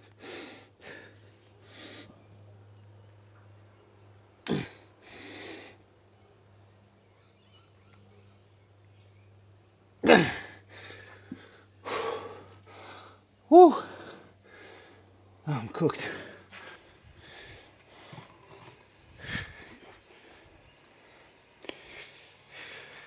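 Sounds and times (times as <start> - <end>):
man breathing hard: 0.1 - 2.2, 4.5 - 5.8, 10.1 - 15.2, 16.0 - 23.0.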